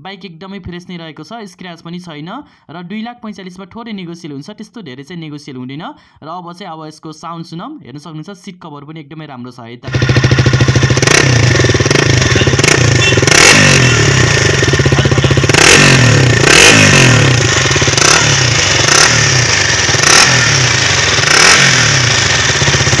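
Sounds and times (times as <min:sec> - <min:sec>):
motorcycle engine idling and revving: 0:09.9 - 0:23.0.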